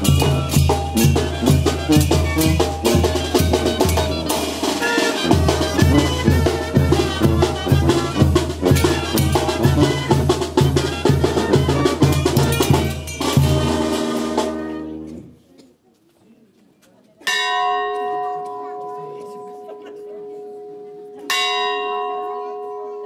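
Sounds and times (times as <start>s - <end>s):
brass and drum band music: 0.0s - 15.4s
bell ringing: 12.0s - 14.0s, 17.3s - 23.0s.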